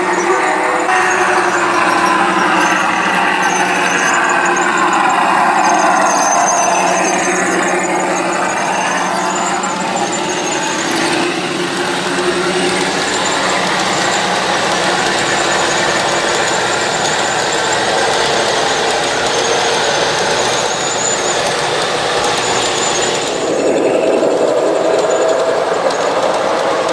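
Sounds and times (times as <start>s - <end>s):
faint high wheel squeal: 0.0s - 26.9s
model train cars rolling on track: 0.0s - 26.9s.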